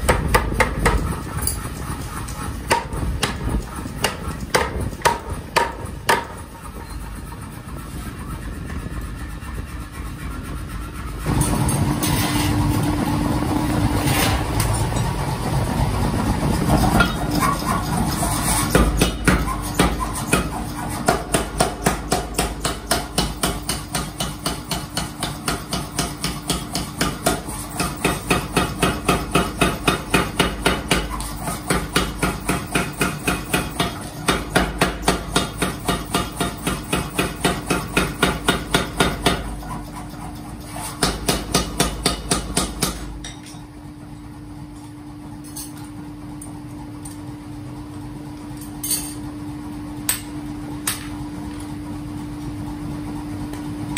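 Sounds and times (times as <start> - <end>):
machine hum: 0.0 - 19.3.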